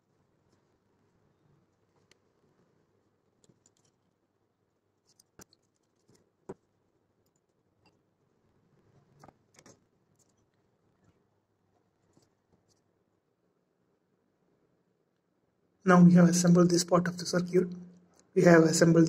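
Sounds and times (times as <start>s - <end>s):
faint clicks and taps: 1.7s - 2.3s, 3.4s - 4.2s, 5.0s - 8.1s, 8.9s - 13.0s.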